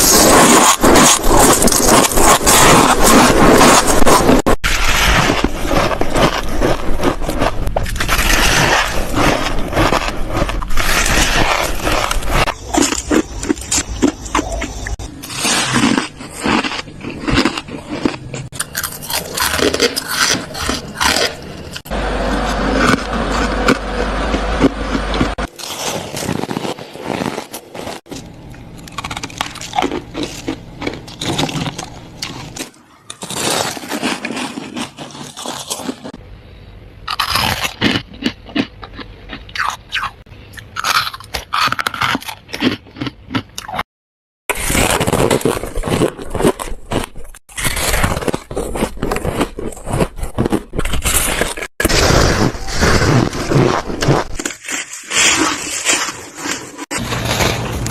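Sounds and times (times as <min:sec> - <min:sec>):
frost scraping and crunching: 0:00.0 - 0:36.2, 0:37.1 - 0:43.9, 0:44.5 - 0:57.9.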